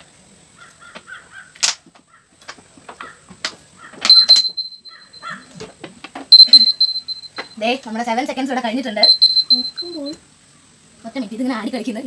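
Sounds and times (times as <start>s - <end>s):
timer beeping: 4.1s - 4.9s, 6.3s - 7.6s, 9.0s - 10.2s.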